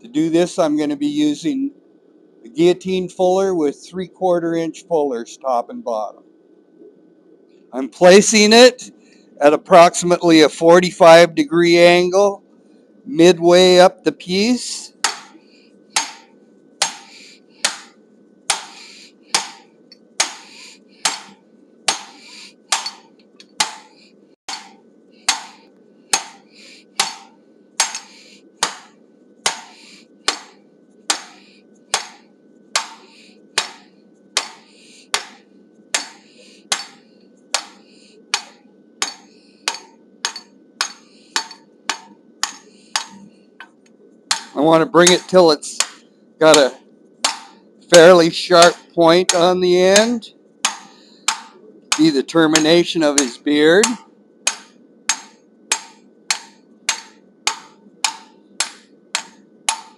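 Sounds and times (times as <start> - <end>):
hammer striking metal die: 15.0 - 15.4, 16.0 - 17.9, 18.5 - 19.6, 20.2 - 23.0, 24.5 - 28.9, 29.5 - 32.2, 32.8 - 33.8, 34.4 - 34.6, 36.0 - 37.0, 37.6 - 37.8, 38.4 - 43.3, 44.3 - 59.9.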